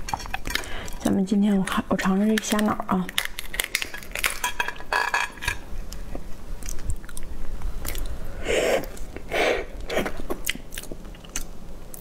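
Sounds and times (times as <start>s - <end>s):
langoustine shell cracking: 2.3s - 5.6s.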